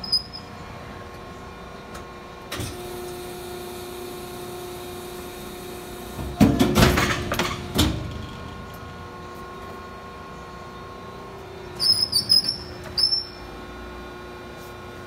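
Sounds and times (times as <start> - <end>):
press clanking and hissing: 6.0 - 8.5.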